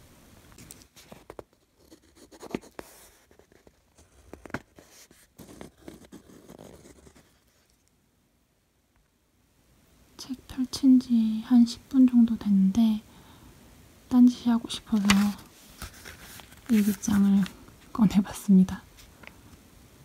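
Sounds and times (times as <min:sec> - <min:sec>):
ballpoint pen scratching on paper: 0:01.6 - 0:07.8.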